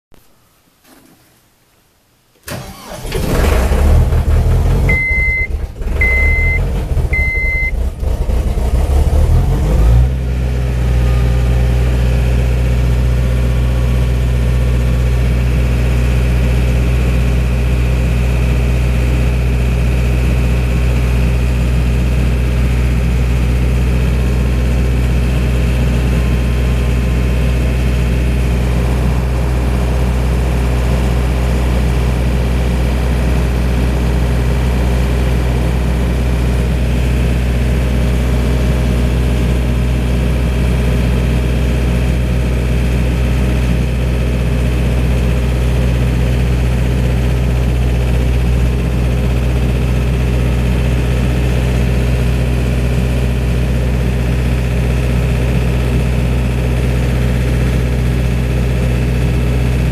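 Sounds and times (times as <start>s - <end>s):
diesel engine starting and idling: 2.4s - 59.9s
short high beeps: 4.9s - 7.8s.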